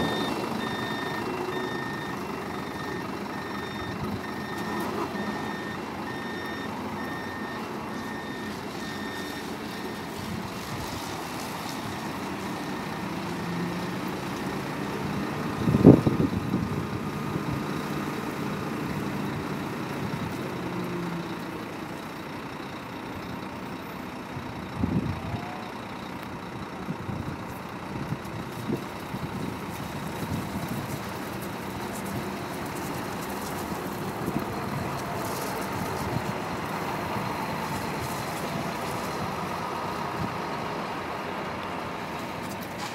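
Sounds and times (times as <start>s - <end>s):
reversing alarm beeping: 0.0s - 10.2s
diesel bus engine running: 0.0s - 42.9s.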